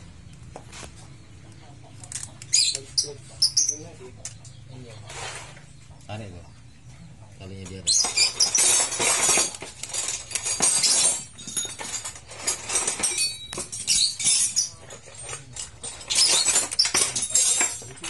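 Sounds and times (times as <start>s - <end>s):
metal tools clinking and rattling: 7.9s - 18.0s.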